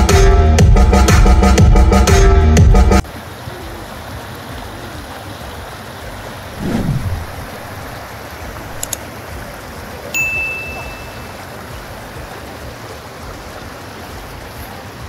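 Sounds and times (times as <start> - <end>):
stream running over rocks: 3.0 - 15.0
falling whoosh: 6.6 - 8.1
quick clicks: 8.8 - 9.0
bell-like ding: 10.2 - 11.3.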